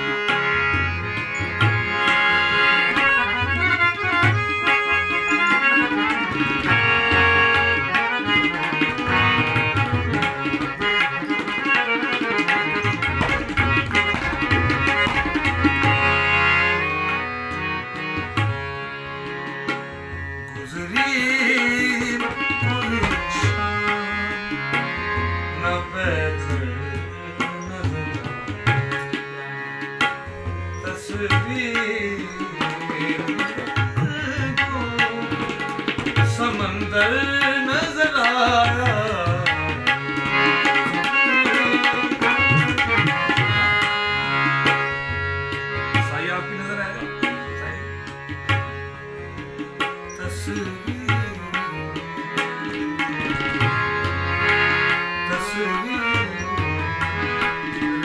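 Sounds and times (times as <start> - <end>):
harmonium chords: 0.0 - 58.0
tabla strokes: 0.3 - 16.5, 20.6 - 24.0
man singing: 20.5 - 28.9, 30.8 - 43.2, 45.9 - 48.0, 50.1 - 52.2, 55.2 - 57.0.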